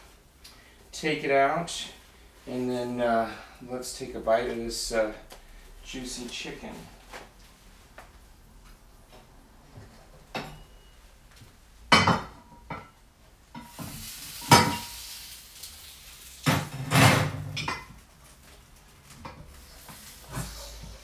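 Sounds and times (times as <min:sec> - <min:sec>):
hiss: 0:13.7 - 0:16.6.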